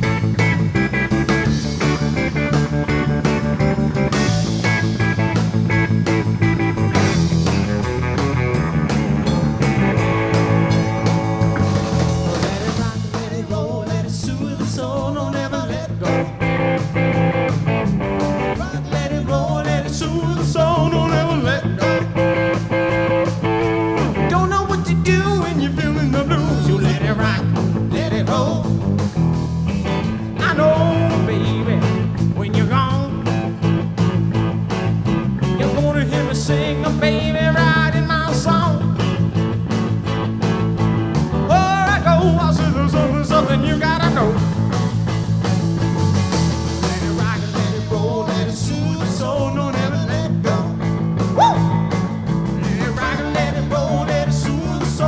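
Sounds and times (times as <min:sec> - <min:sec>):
drum kit: 0:00.0 - 0:55.0
electric bass: 0:00.0 - 0:55.0
electric guitar: 0:00.0 - 0:55.0
man singing into microphone: 0:12.4 - 0:16.4, 0:18.6 - 0:22.2, 0:24.3 - 0:28.8, 0:30.4 - 0:33.3, 0:35.6 - 0:38.9, 0:41.5 - 0:44.4, 0:46.8 - 0:50.8, 0:52.6 - 0:55.0.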